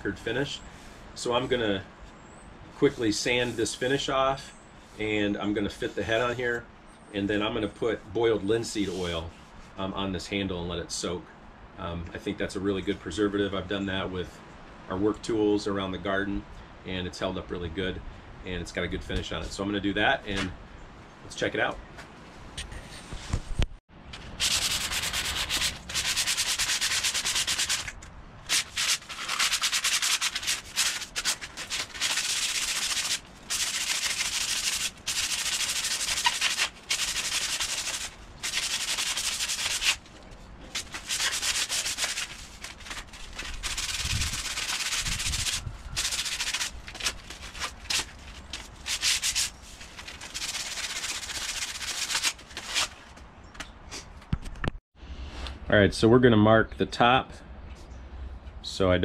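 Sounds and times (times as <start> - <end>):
sandpaper rubbing on wood: 24.4 - 40.0, 40.7 - 53.0.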